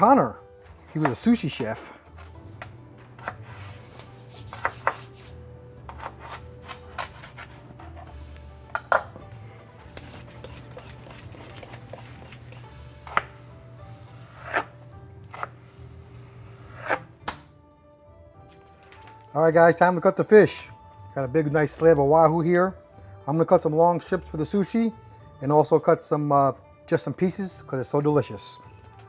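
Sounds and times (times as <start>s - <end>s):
soft background music: 0.0s - 29.0s
knife scraping board: 3.2s - 8.1s, 9.9s - 13.3s, 14.1s - 15.6s, 16.2s - 17.1s.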